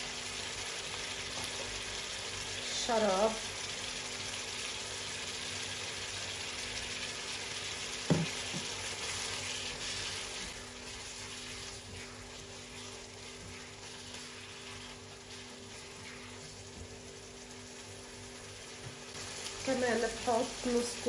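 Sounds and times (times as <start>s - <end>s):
meat sizzling in a frying pan: 0.0s - 21.0s
spatula stirring in pan: 8.2s - 21.0s.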